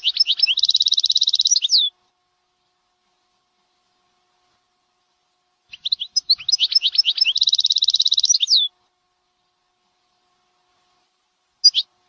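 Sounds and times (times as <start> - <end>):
canary singing: 0.0 - 1.9, 5.7 - 8.7, 11.6 - 11.9.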